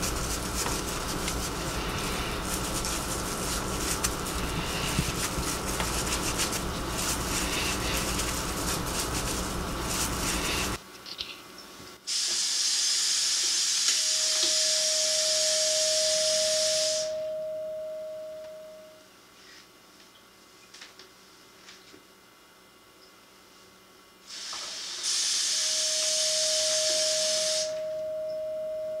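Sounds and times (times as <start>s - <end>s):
dense noise with low hum: 0.0s - 12.1s
sustained mid-pitched tone: 14.3s - 19.0s.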